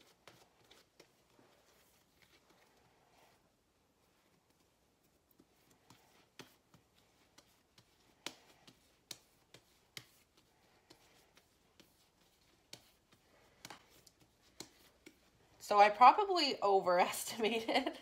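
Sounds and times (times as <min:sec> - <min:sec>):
hands patting bread dough: 0:04.2 - 0:15.6.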